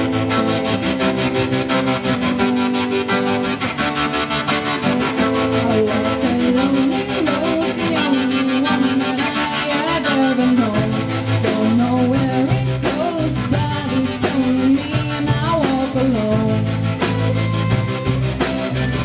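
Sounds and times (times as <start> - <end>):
live rock band playing: 0.0 - 19.0
woman singing: 4.8 - 17.7.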